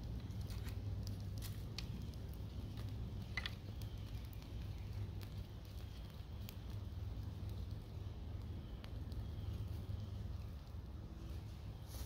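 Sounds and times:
campfire crackling and popping: 0.0s - 12.0s
steady low rumble: 0.0s - 12.0s.

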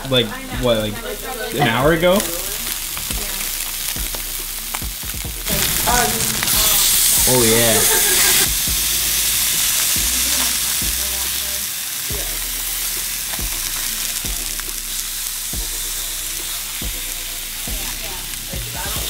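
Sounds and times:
fish sizzling in hot fat: 0.0s - 19.0s.

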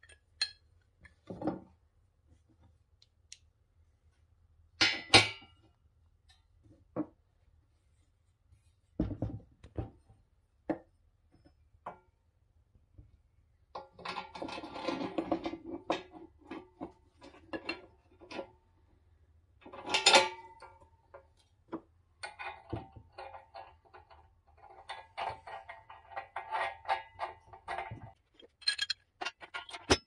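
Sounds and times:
metal clinks and rattles of bolts: 24.9s - 30.0s.

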